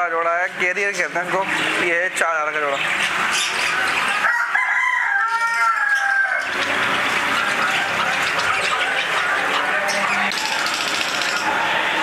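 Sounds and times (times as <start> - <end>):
caged birds chirping: 0.0 - 12.0
rooster crowing: 4.1 - 6.5.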